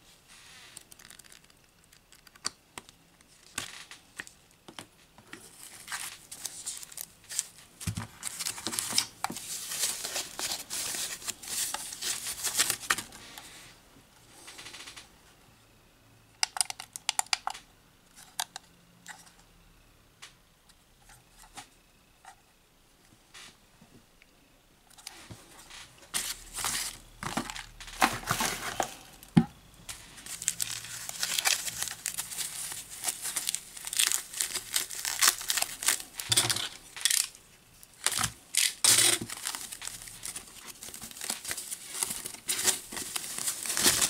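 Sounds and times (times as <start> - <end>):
foam packaging rustling: 5.3 - 13.5, 25.0 - 44.0.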